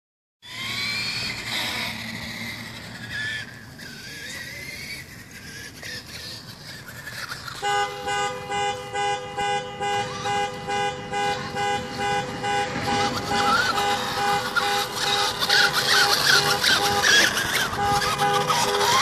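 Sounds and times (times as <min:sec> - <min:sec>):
horn-like tone blasts: 0:07.6 - 0:19.0.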